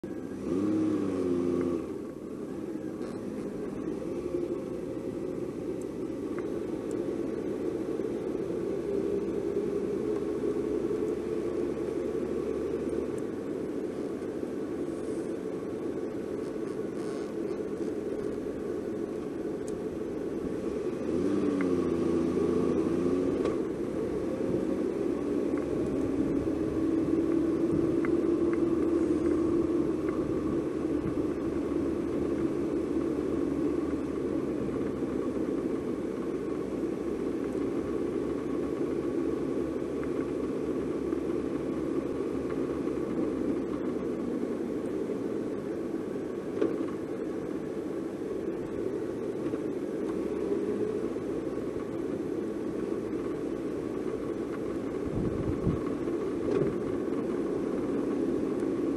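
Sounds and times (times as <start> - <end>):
car engine and road noise: 0.0 - 58.9
engine note rising and falling: 0.3 - 2.2.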